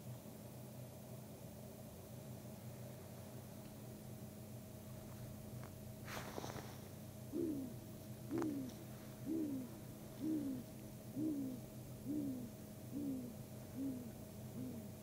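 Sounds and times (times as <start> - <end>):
steady low hum: 0.0 - 15.0
owl hooting: 7.2 - 15.0.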